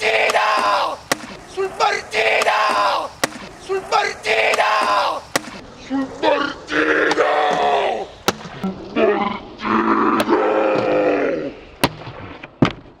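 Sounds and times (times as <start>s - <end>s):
man yelling: 0.0s - 5.4s
sharp clicks or knocks: 0.6s - 1.4s, 2.4s - 3.5s, 4.8s - 5.6s.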